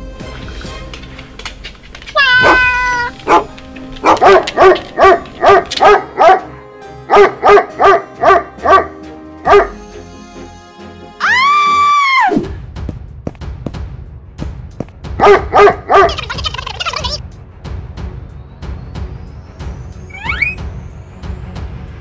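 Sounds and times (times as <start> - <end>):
background music: 0.0 - 22.0
dog barking: 2.4 - 6.5, 7.1 - 9.8, 15.2 - 16.4.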